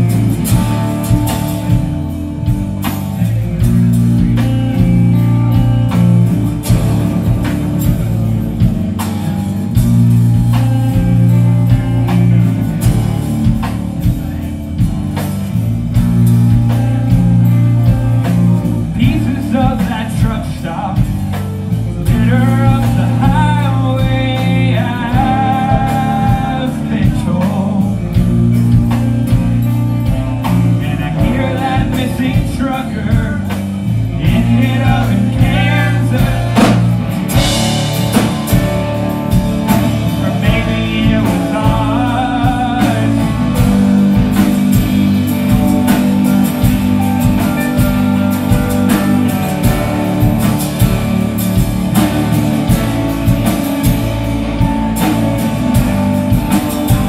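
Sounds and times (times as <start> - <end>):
live rock band playing: 0.0 - 57.0
sung lead vocal: 0.0 - 57.0.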